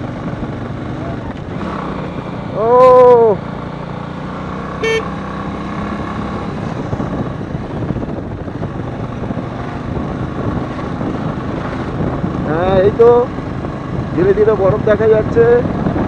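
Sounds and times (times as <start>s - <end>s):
motorcycle engine hum: 0.0s - 16.0s
horn beep: 4.8s - 5.2s
wind on microphone: 6.2s - 16.0s.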